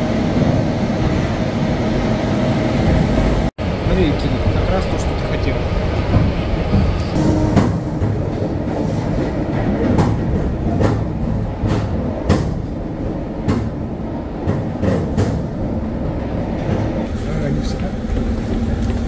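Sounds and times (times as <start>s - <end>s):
train rumbling on rails: 0.0s - 19.0s
wheels clacking over rail joints: 6.0s - 19.0s.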